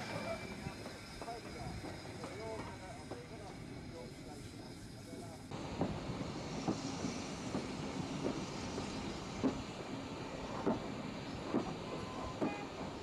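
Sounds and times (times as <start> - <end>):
rumble of moving train: 0.0 - 13.0
steam locomotive chuffing: 0.0 - 13.0.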